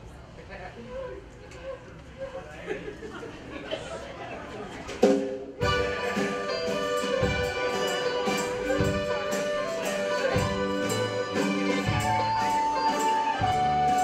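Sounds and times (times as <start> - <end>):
polka band playing: 4.9 - 14.0.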